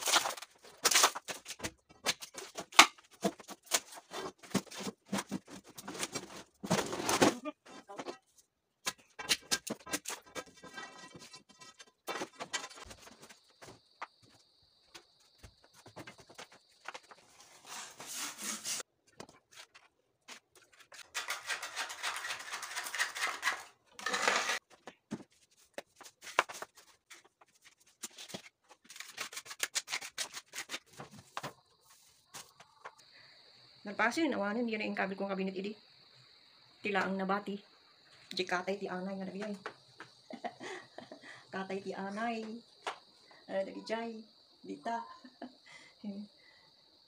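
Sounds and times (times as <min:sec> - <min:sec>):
brushing on tiled floor: 0:17.2 - 0:18.9.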